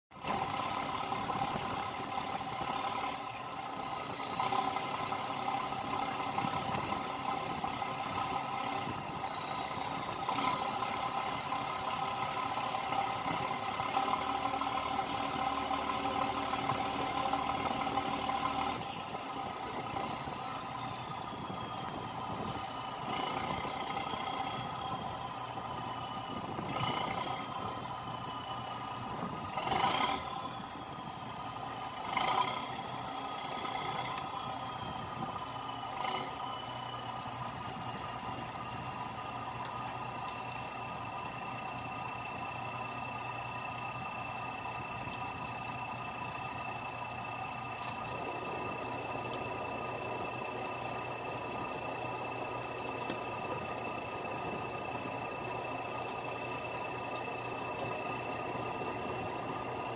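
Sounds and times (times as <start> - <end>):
boat engine running: 0.1 - 59.9.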